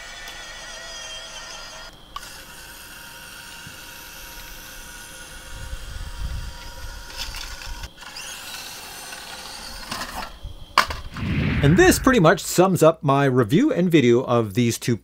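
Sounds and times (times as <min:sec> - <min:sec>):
toy truck electric motor whining: 0:00.0 - 0:10.4
short low rumble: 0:11.2 - 0:12.6.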